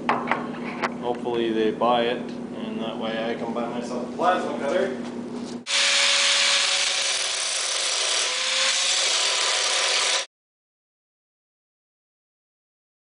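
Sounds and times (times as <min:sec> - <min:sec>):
angle grinder cutting metal: 0:05.7 - 0:10.3.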